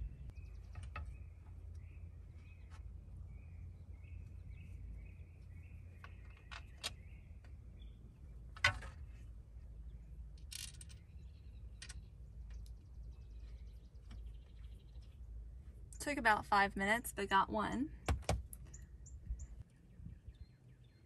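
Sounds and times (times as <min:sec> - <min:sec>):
low rumble: 0:00.0 - 0:06.1
wooden rails and bolts clicking: 0:06.0 - 0:07.6, 0:08.5 - 0:09.1, 0:10.3 - 0:11.1.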